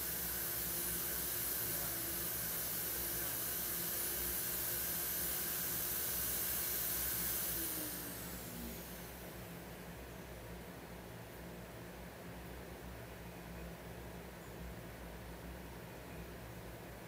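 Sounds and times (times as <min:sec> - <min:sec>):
electric motor running and winding down: 0:00.0 - 0:09.4.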